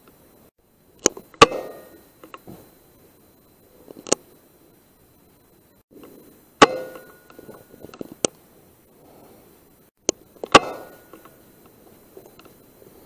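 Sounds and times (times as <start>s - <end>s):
sharp clicks: 1.0s - 2.4s, 3.9s - 4.3s, 10.0s - 12.6s
air rifle shots: 1.4s - 2.0s, 10.4s - 11.3s.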